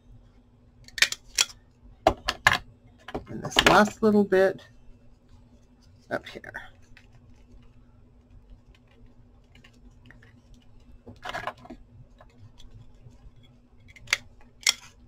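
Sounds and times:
paper and fabric rustling: 5.0 - 13.7.

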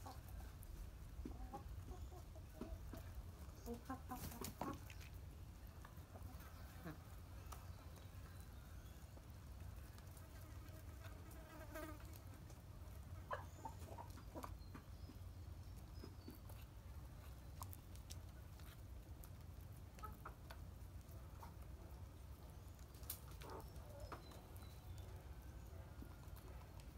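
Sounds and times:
chickens pecking on plastic tray: 0.0 - 8.2.

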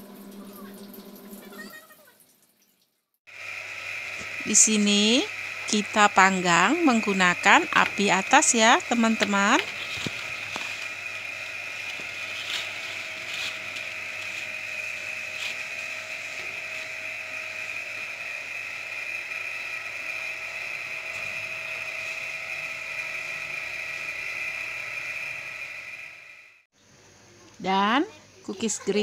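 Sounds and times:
oven whirring: 3.4 - 26.6.

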